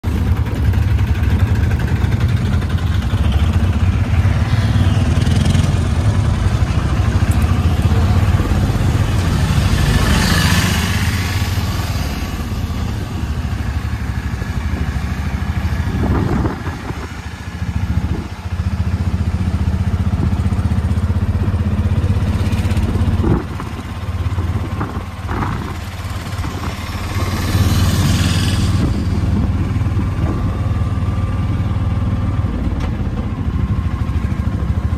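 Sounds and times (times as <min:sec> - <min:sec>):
auto-rickshaw engine running: 0:00.0 - 0:34.9.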